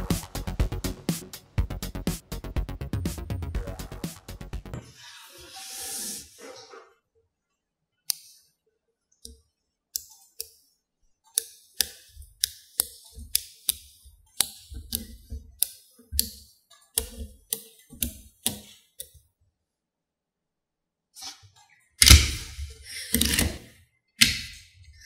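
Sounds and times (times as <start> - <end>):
magnetic balls clicking: 11.3 - 19.2.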